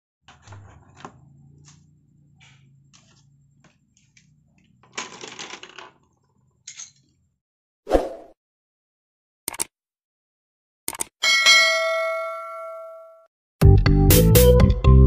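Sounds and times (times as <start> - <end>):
coloured pencils clattering: 0.3 - 7.2.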